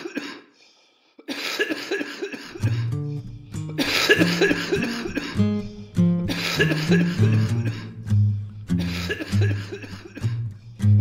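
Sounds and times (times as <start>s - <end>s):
plucked guitar: 2.6s - 11.0s
bass line: 5.4s - 8.8s.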